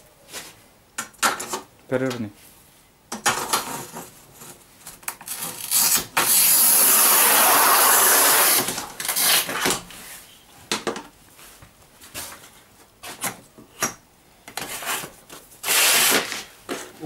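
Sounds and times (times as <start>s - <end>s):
tile cutter scratching tile: 5.3s - 9.6s, 14.7s - 16.4s.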